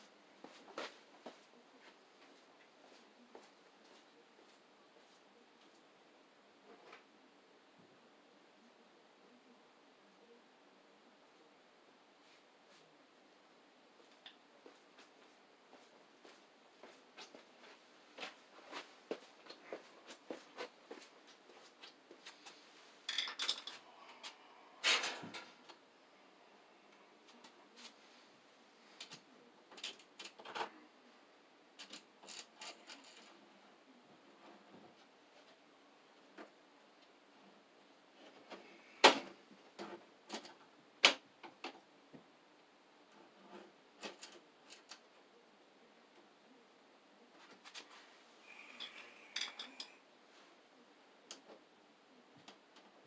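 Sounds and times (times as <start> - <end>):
clattering of handled objects: 22.3 - 23.8, 48.5 - 50.0.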